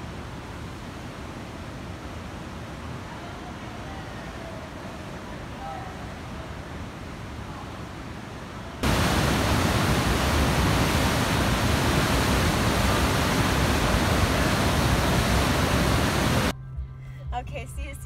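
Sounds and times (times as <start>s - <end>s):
loud rushing noise: 8.8s - 16.5s.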